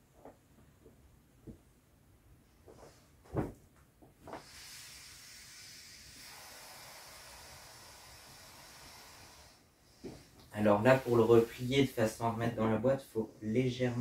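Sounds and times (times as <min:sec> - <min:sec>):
soft knocks on inflatable: 0:03.3 - 0:03.6
air hissing from inflatable: 0:04.3 - 0:12.4.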